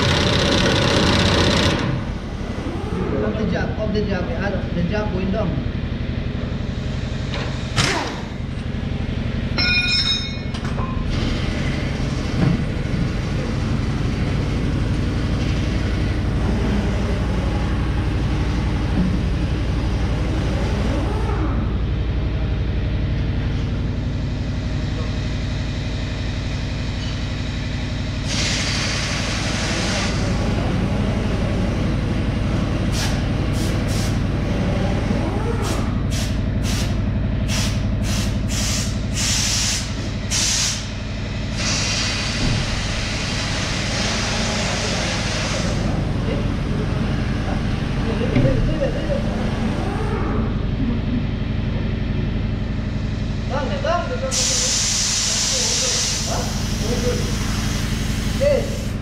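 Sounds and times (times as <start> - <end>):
truck engine running: 0.0 - 28.3, 42.2 - 54.4
compressed air hissing: 28.2 - 30.2, 36.1 - 45.9, 54.3 - 59.0.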